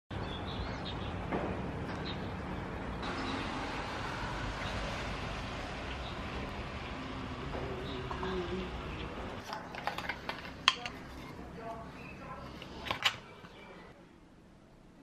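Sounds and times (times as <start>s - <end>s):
traffic on wet road: 3.0s - 9.4s.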